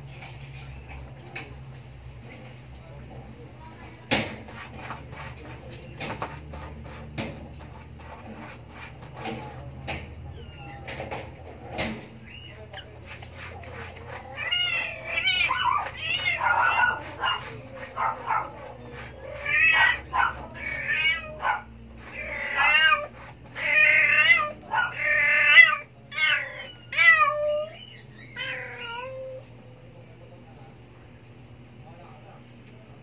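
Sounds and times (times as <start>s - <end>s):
kittens mewing: 13.9s - 29.6s.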